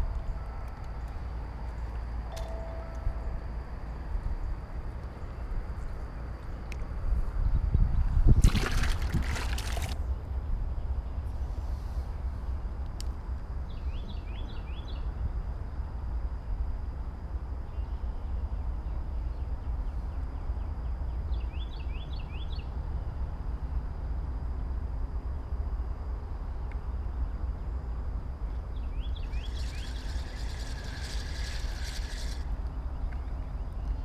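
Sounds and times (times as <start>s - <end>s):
bird chirping: 28.5s - 34.0s
fishing reel whirring: 29.2s - 32.6s.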